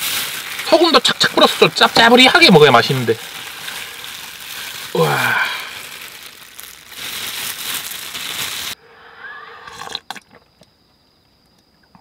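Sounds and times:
person slurping soup: 0:09.2 - 0:10.3.

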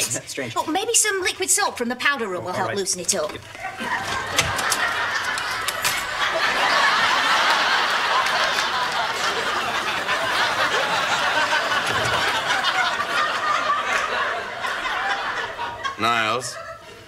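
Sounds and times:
audience laughing: 0:03.5 - 0:17.0.

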